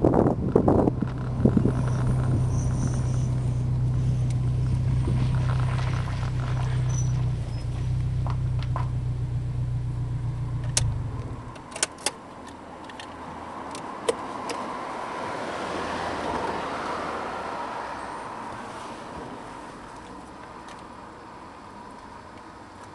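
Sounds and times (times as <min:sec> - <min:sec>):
car engine idling: 0:00.0 - 0:11.7.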